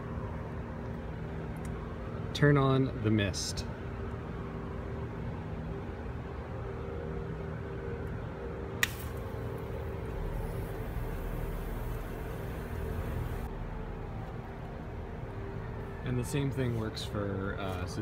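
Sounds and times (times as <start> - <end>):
low background hum: 0.0 - 18.0
misting line spraying hiss: 8.8 - 13.5.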